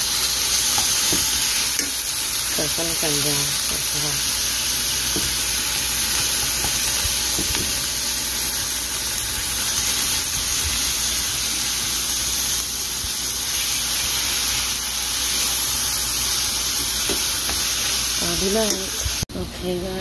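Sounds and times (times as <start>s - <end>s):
meat and vegetables sizzling in pan: 0.0s - 19.3s.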